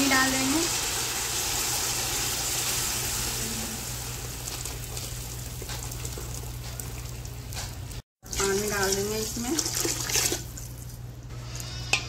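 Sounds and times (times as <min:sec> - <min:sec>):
hot oil sizzling and hissing: 0:00.0 - 0:09.6.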